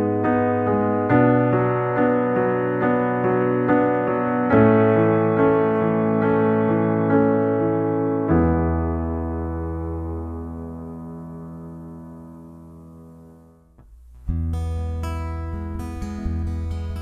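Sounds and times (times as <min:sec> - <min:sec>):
slow piano playing: 0:00.0 - 0:17.0.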